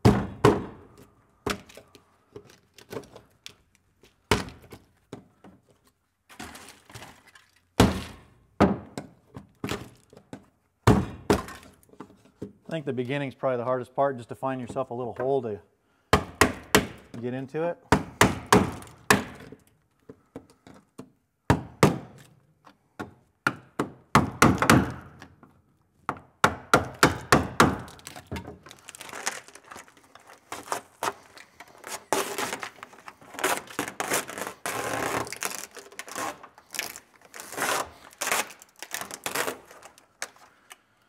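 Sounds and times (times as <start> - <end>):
scraping and crackling: 27.9 - 40.8.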